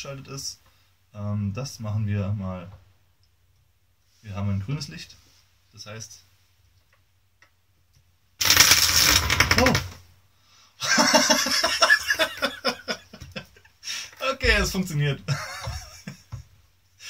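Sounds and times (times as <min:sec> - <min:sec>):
motors clattering on table: 0:08.4 - 0:10.0.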